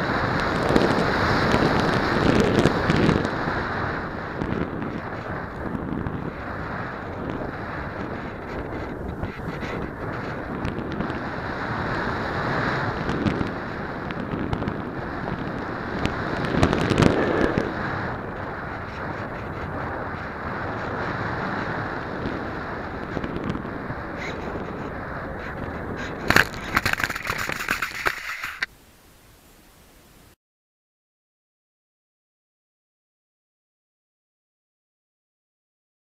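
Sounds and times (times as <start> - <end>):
air rushing over microphone: 0.0 - 28.7
plane scraping through sand: 0.1 - 28.7
faint hiss: 28.5 - 30.4.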